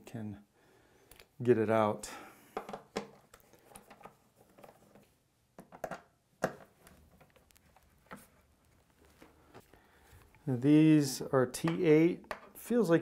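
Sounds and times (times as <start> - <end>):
plastic and metal parts handled: 2.6 - 10.6.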